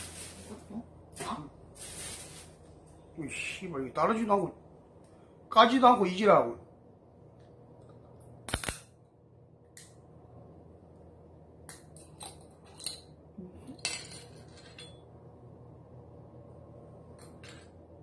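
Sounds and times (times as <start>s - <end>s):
tableware and glass clinking: 13.7s - 15.1s.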